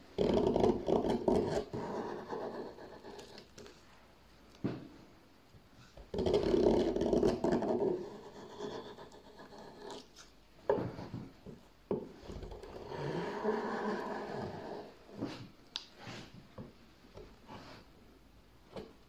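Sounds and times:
gouge scraping wood: 0.2 - 3.7, 6.1 - 11.2, 12.2 - 15.4.

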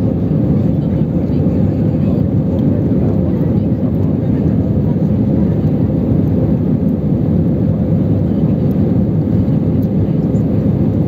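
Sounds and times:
jet engine cabin rumble: 0.0 - 11.0.

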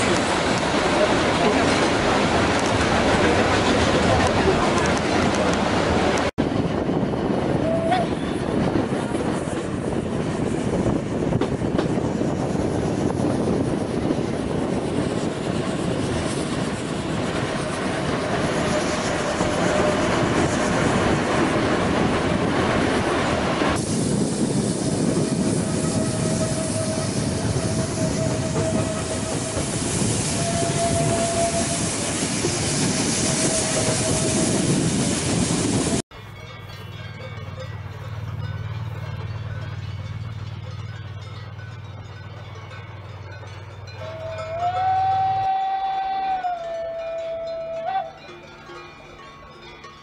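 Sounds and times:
train wheels rumbling and clattering: 0.0 - 50.0
wheel squeal: 25.0 - 35.8.

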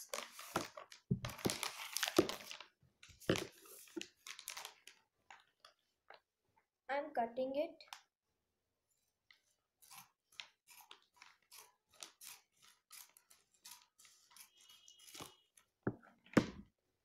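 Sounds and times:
scissors cutting plastic wrapper: 0.0 - 2.6, 3.2 - 5.5, 9.8 - 15.4.

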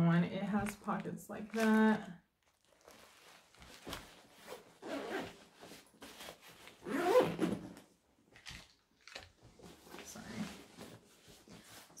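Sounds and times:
bag fabric rustling: 0.6 - 7.8
zipper being pulled: 4.4 - 5.5, 6.7 - 7.8.

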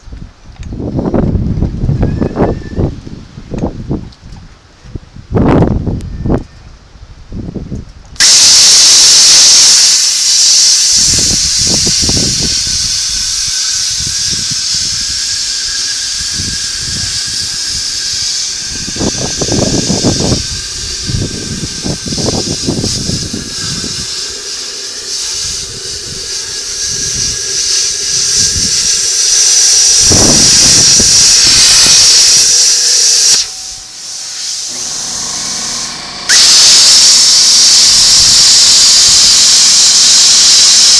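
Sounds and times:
cutoff wheel grinding steel: 8.2 - 40.9.

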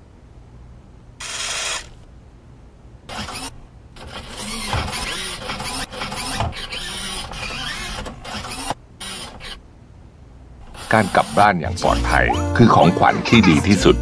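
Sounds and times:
mechanical whirring and servo buzzes: 1.2 - 2.0, 3.1 - 9.6, 10.7 - 11.5.

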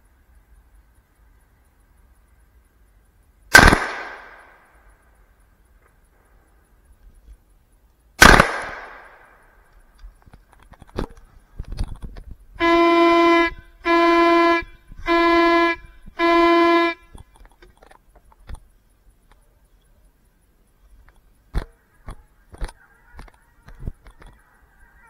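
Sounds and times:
gunshot: 3.5 - 4.6, 8.2 - 9.4
hunting horn blasts: 12.6 - 17.2.

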